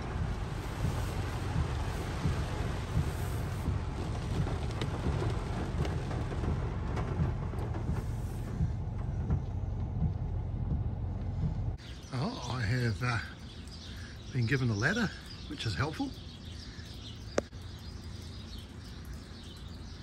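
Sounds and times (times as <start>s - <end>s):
car engine rumble from inside: 0.0s - 11.8s
windscreen wipers running: 0.0s - 12.3s
rain hissing on car roof: 0.0s - 20.0s.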